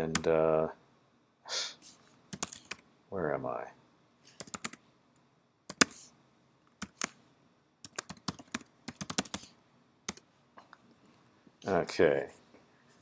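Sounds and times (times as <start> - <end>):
computer keyboard typing: 2.3 - 2.8, 4.4 - 4.8, 6.7 - 7.2, 7.8 - 9.5.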